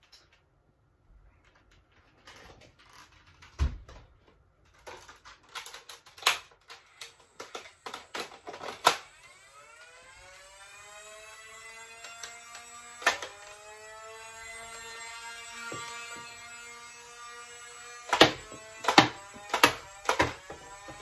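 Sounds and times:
plastic clicks and clacks: 1.4s - 9.1s, 18.0s - 21.0s
small electric motor whining: 6.7s - 21.0s.

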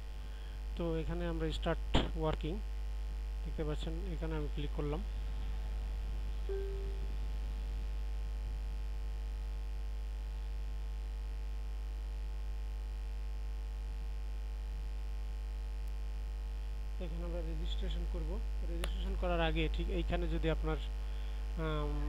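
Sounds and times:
mains hum: 0.0s - 22.0s
short faint tone: 6.5s - 7.2s.

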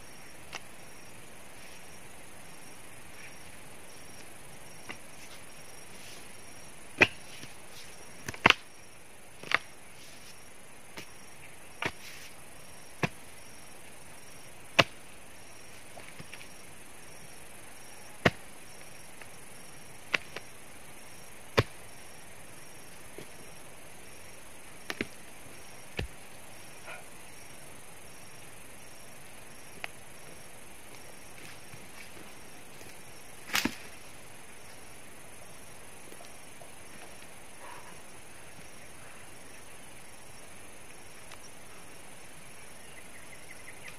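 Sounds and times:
hand tool chopping roots and soil: 7.0s - 7.6s, 8.2s - 8.7s, 9.4s - 9.7s, 11.8s - 12.3s, 13.0s - 13.3s, 14.7s - 15.0s, 18.2s - 18.5s, 20.1s - 20.5s, 21.5s - 21.8s, 25.9s - 26.2s.

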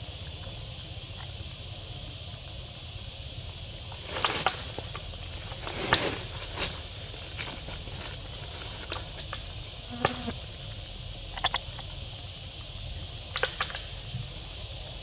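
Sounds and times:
high-pitched insect hum: 0.0s - 15.0s
short sharp clicks and crackles: 13.3s - 13.9s.

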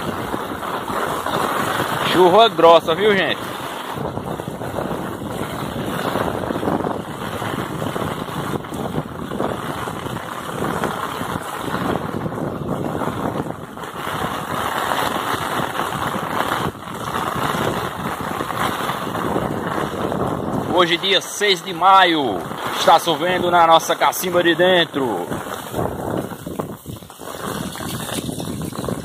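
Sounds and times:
heavy rain on cobblestones: 0.0s - 29.0s.

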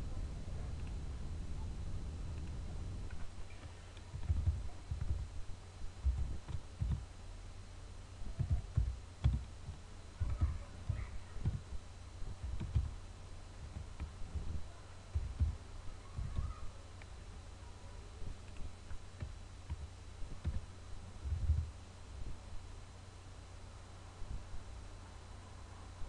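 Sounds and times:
computer keyboard typing: 3.6s - 5.3s, 8.4s - 11.6s, 12.4s - 13.0s.

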